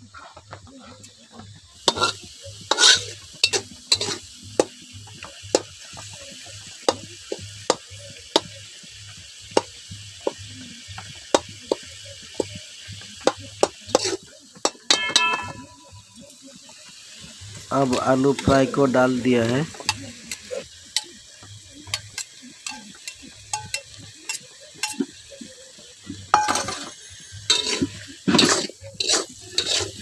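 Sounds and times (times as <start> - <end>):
food sizzling: 0.0 - 30.0
metal spatula scraping pan: 1.8 - 5.3, 13.6 - 15.6, 26.4 - 30.0
short ringing tone: 15.0 - 16.0.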